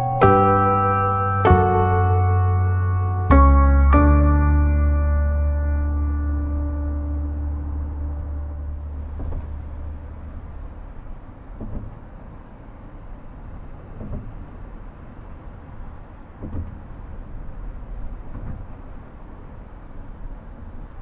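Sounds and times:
road and tyre noise in car: 0:00.0 - 0:21.0
soft thump: 0:08.8 - 0:10.0, 0:11.6 - 0:12.0, 0:14.0 - 0:14.4.

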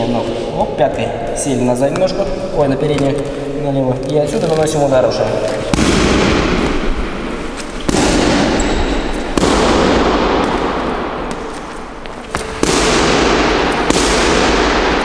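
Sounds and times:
glove punching heavy bag: 0:05.7 - 0:15.0.

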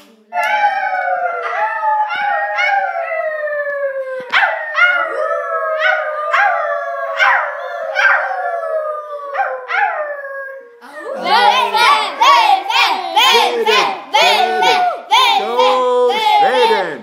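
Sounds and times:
wolves howling: 0:00.4 - 0:11.5.

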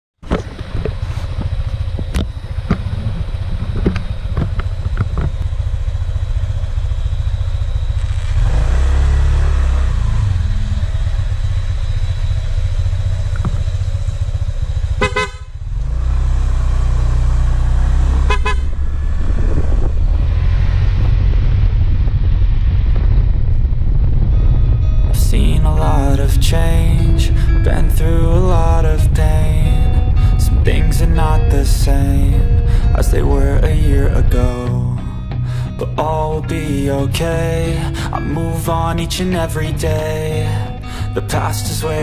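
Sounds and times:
scooter engine accelerating: 0:00.2 - 0:42.0
horn toots: 0:14.9 - 0:16.0, 0:18.0 - 0:19.7.

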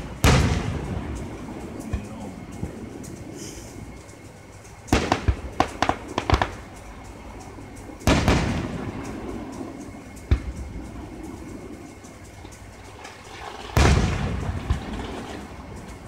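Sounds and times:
fireworks popping and banging: 0:00.0 - 0:02.3, 0:04.9 - 0:06.6, 0:12.9 - 0:15.9.

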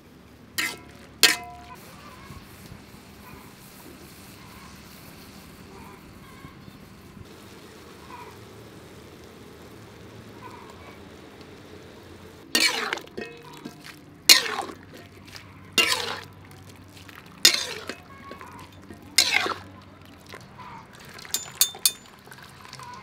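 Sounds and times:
metal strainer clinking on wok: 0:00.6 - 0:01.8, 0:12.6 - 0:15.2, 0:15.8 - 0:16.3, 0:17.4 - 0:19.7, 0:21.3 - 0:22.2.

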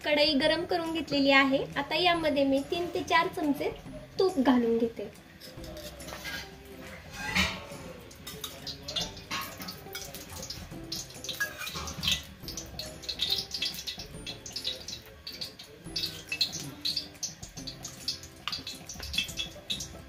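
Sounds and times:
ghee sizzling in a pan: 0:00.0 - 0:20.0
small crackles and pops: 0:08.1 - 0:20.0.

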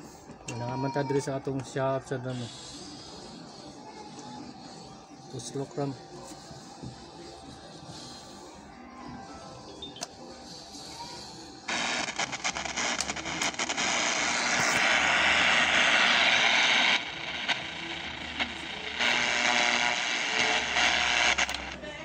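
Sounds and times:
radio static hiss: 0:10.0 - 0:22.0.

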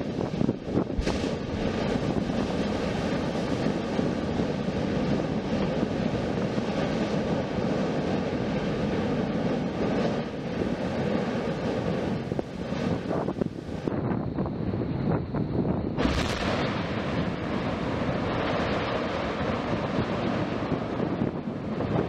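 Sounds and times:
volcanic explosion: 0:00.0 - 0:22.0
ash jetting with loud rushing: 0:00.7 - 0:07.2, 0:16.0 - 0:22.0.

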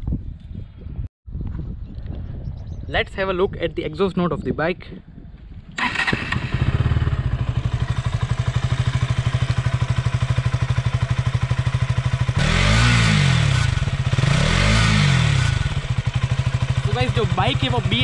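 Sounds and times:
motorcycle engine idling and revving: 0:05.8 - 0:18.0.

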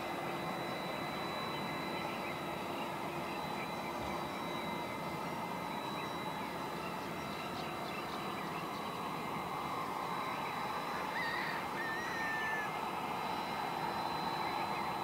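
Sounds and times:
distant jet engines running: 0:00.0 - 0:15.0
bird calling: 0:10.4 - 0:12.8.

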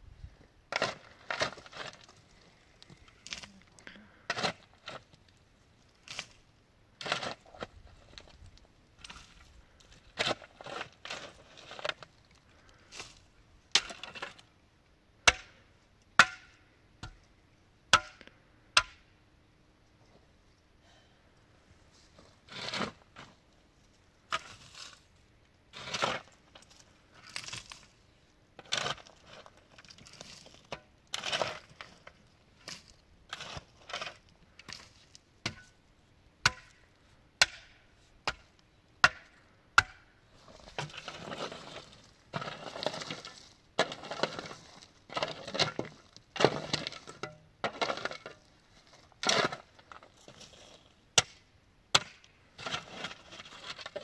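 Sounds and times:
crunching and rustling: 0:00.7 - 0:06.4, 0:21.9 - 0:35.8, 0:40.3 - 0:51.0
wood chopping knocks and cracks: 0:15.3 - 0:15.6, 0:17.9 - 0:18.2, 0:36.4 - 0:36.8, 0:37.4 - 0:40.0, 0:51.2 - 0:52.2.

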